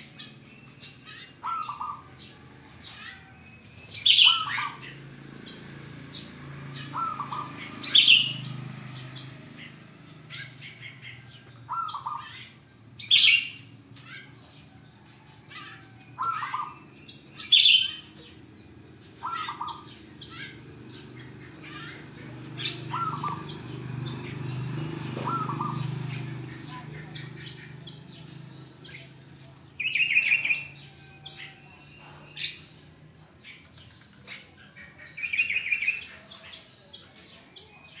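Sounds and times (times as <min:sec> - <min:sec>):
birds chirping rapidly: 0:00.0 - 0:38.0
dove cooing: 0:01.0 - 0:05.8, 0:06.4 - 0:29.1.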